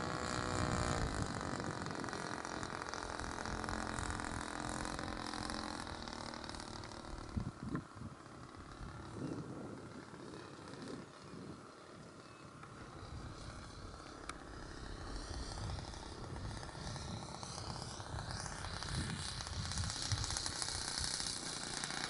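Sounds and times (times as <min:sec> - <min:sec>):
model plane engine running: 0:00.0 - 0:22.0.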